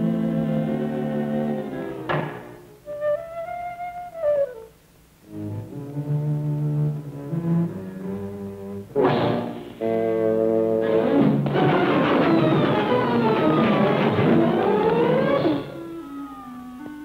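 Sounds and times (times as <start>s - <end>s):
orchestral cartoon music: 2.7s - 17.0s
noisy crash: 9.0s - 9.8s, 10.9s - 15.7s.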